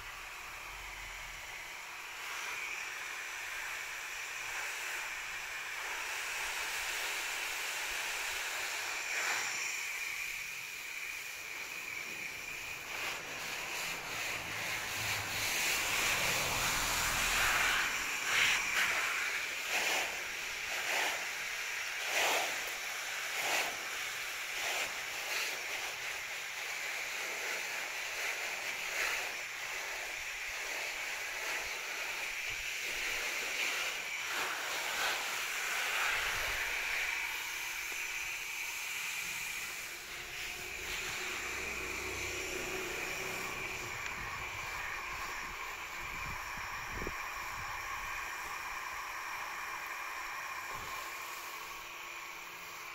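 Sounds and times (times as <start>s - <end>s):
hose nozzle spraying water: 0.0s - 52.9s
spray spattering on leaves: 12.0s - 46.4s.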